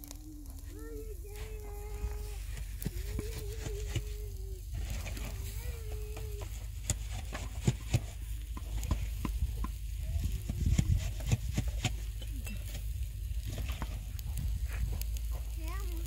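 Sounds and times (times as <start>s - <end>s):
steady low rumble: 0.0s - 16.0s
taps and scraping of blocks: 6.4s - 9.8s, 10.4s - 12.9s.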